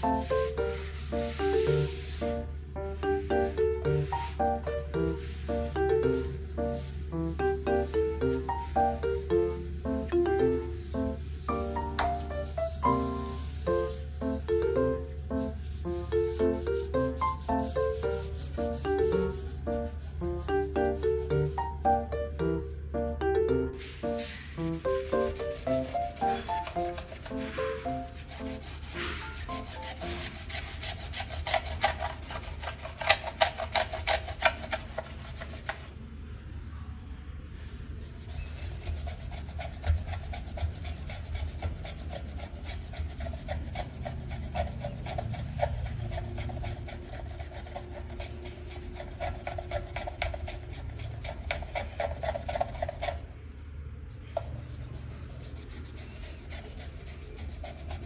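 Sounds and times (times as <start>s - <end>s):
cloth scrubbing metal plate: 3.2s - 21.8s, 24.1s - 35.9s, 38.2s - 53.2s.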